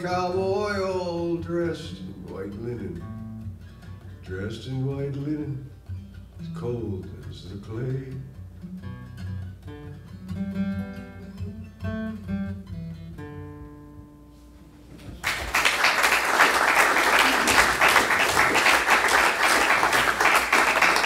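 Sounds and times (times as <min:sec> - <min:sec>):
acoustic guitar picking: 0:00.0 - 0:15.2
audience applause: 0:15.2 - 0:21.0.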